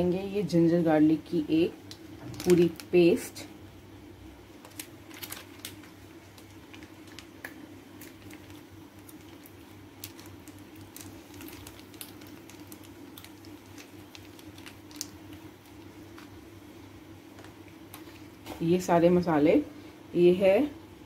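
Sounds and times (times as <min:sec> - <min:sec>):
steady low hum: 0:00.0 - 0:21.0
plastic sachet crackling: 0:01.8 - 0:03.2, 0:04.5 - 0:16.4.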